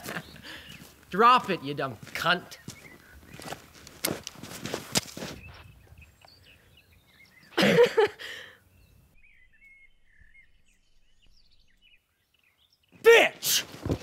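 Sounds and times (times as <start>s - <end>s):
faint bird chirps: 2.5s - 3.7s, 5.3s - 7.6s, 8.5s - 13.1s.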